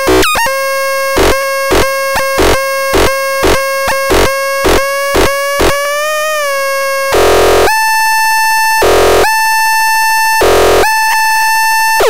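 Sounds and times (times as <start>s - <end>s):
harsh noisy bursts: 0.0s - 6.0s, 7.1s - 7.7s, 10.4s - 11.2s
buzzy synthesizer tone: 0.0s - 8.0s, 8.7s - 9.5s, 10.3s - 12.0s.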